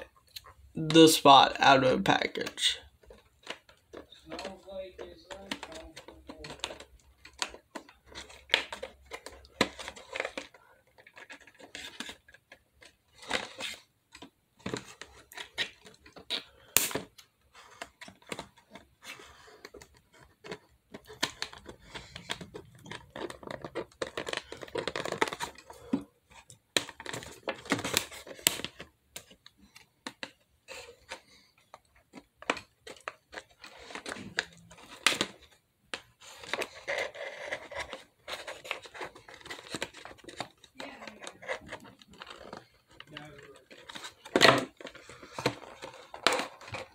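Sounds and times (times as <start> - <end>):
plastic crackling: 1.3 - 46.9.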